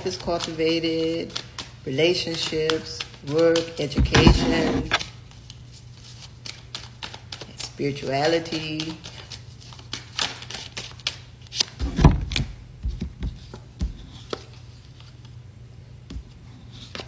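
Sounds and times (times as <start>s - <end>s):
cards clicking and tapping: 0.0s - 5.1s, 6.4s - 11.7s, 12.3s - 14.6s
low steady hum: 0.0s - 10.1s
heavy thump: 4.0s - 5.0s.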